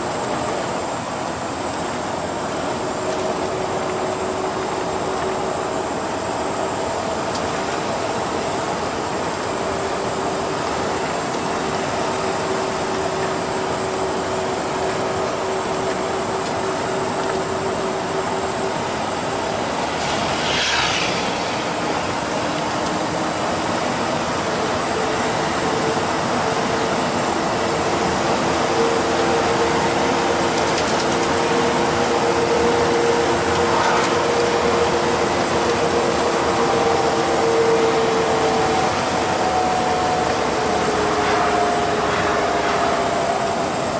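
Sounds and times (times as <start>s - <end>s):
bus engine and road drone: 0.0s - 43.9s
rear axle whine: 0.0s - 43.9s
brief hiss: 20.0s - 22.0s.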